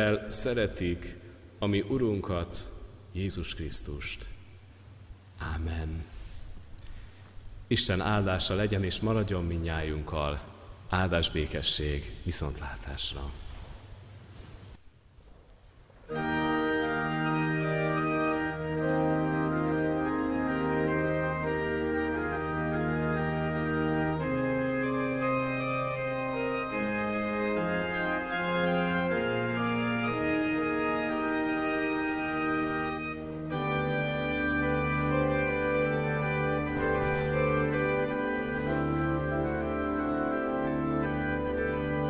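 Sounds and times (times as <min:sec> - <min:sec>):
organ playing held chords: 0:16.1 - 0:42.0.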